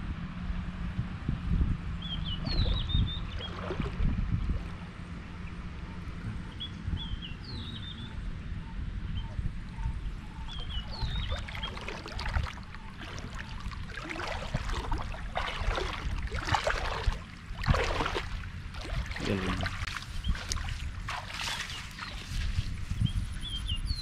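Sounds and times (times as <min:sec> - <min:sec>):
low rumble: 0:00.0 - 0:21.4
water splashing: 0:02.3 - 0:04.9, 0:10.5 - 0:22.6.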